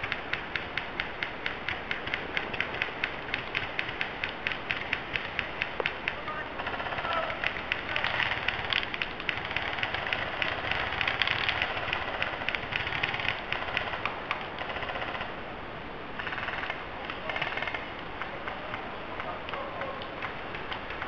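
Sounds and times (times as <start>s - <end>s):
airsoft guns firing: 0.0s - 15.4s.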